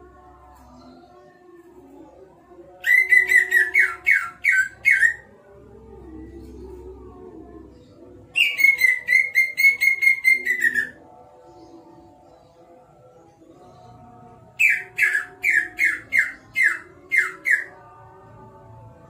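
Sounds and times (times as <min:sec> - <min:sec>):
bird singing whistled notes: 0:08.4 - 0:11.0, 0:14.6 - 0:17.7.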